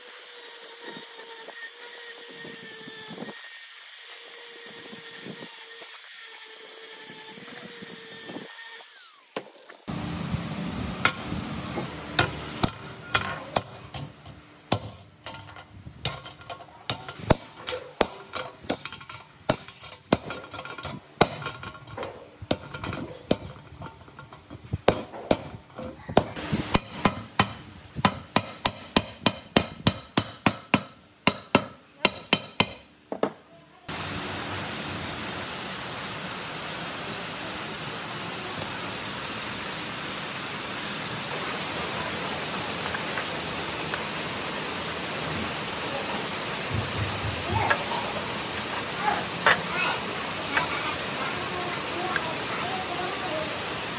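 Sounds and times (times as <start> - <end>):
angle grinder with wire wheel: 0.0 - 14.2
liquid pouring hiss: 33.9 - 53.9.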